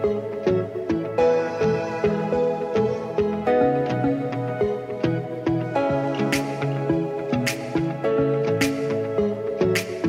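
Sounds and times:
calm instrumental tune: 0.0 - 10.0.

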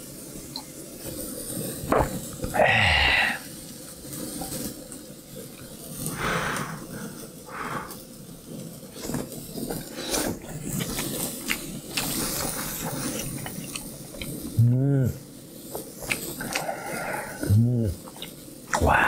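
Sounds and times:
person slurping stew: 1.9 - 3.4, 6.1 - 8.0, 9.0 - 19.0
spoon and mouth clicks: 12.9 - 14.4, 16.0 - 16.7, 17.4 - 18.8.

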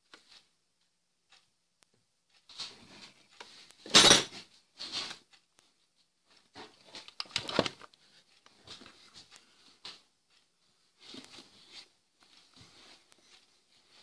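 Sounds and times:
plastic panel rustling and scraping: 6.5 - 9.0.

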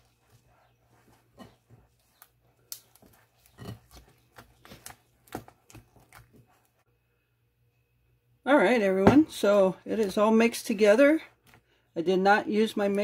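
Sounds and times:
spoon stirring frosting in bowl: 0.0 - 6.9.

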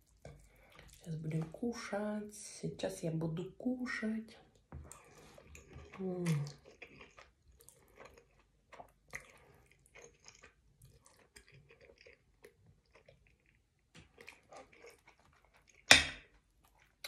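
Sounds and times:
person chewing: 0.0 - 1.1, 4.8 - 17.0.

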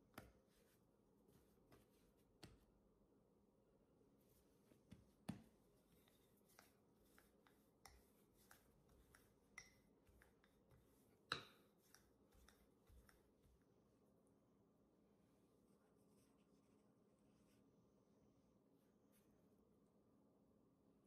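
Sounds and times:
rolling pin on stone countertop: 0.0 - 2.8, 4.2 - 13.6
hands patting dough: 0.0 - 2.9, 4.3 - 13.8.

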